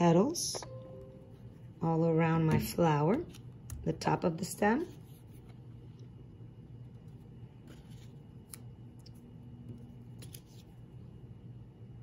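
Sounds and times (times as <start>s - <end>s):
low room hum: 0.0s - 12.0s
paper rustling and scuffing: 7.6s - 8.4s.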